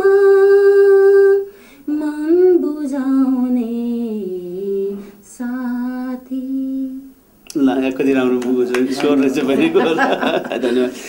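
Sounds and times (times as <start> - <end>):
woman singing unaccompanied: 0.0 - 7.2.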